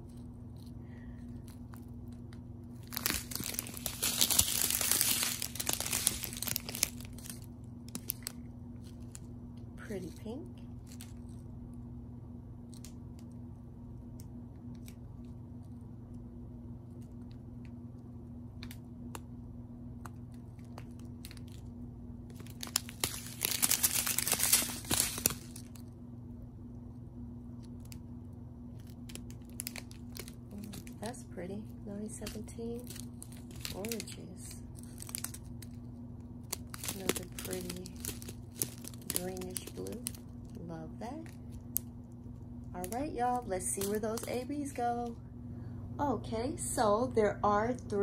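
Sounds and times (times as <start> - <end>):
plastic bags crinkling: 2.7 - 9.3, 10.0 - 11.4, 20.3 - 21.7, 22.3 - 25.9, 28.7 - 35.8, 36.4 - 41.9, 42.8 - 45.0.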